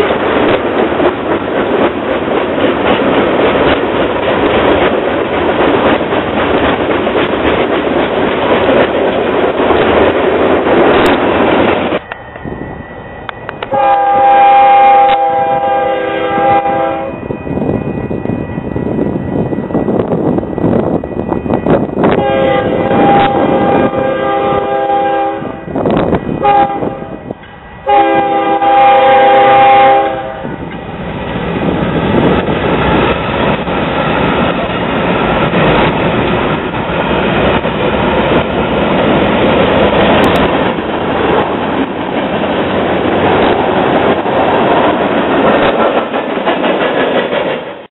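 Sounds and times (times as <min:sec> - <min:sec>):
train wheels rolling on rails: 0:00.0 - 0:47.9
locomotive air horn blasts: 0:13.6 - 0:17.2, 0:22.1 - 0:30.6.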